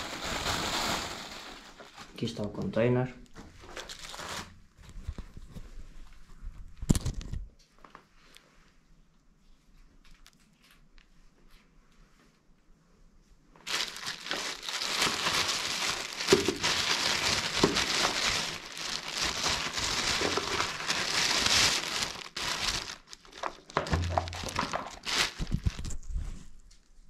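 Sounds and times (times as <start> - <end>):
plastic wrapping crinkling: 0.0 - 2.5, 3.6 - 5.4, 13.6 - 27.0.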